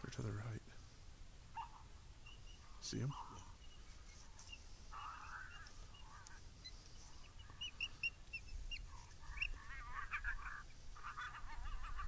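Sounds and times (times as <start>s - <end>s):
animal yelping calls: 1.5s - 12.0s
animal high chirps: 1.6s - 12.0s.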